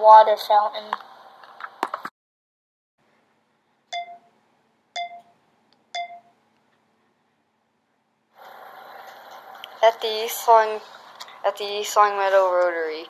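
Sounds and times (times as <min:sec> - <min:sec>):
short electronic beeps: 0:03.9 - 0:04.3, 0:05.0 - 0:05.4, 0:06.0 - 0:06.4.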